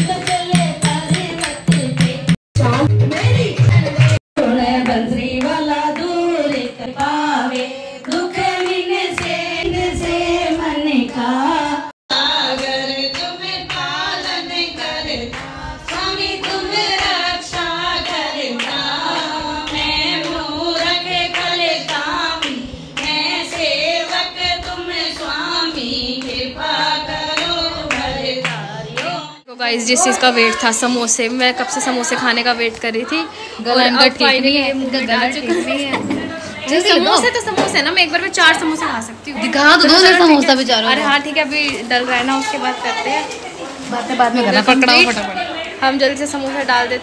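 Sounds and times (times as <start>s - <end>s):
hand claps: 0.0s - 2.4s, 4.0s - 4.2s, 4.8s - 9.4s, 12.5s - 14.4s
women singing devotional song: 0.0s - 47.0s.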